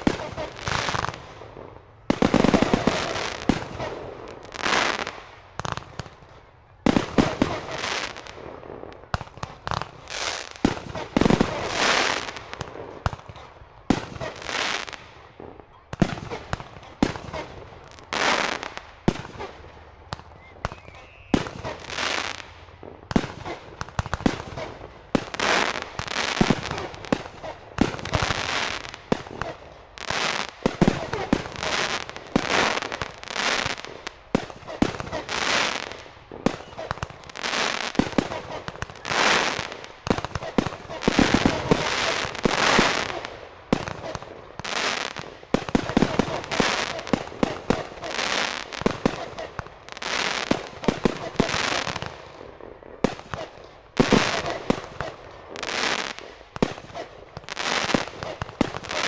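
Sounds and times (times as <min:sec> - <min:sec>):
fireworks bursting with sharp bangs: 0:00.0 - 0:59.0
fireworks crackling: 0:00.0 - 0:59.0.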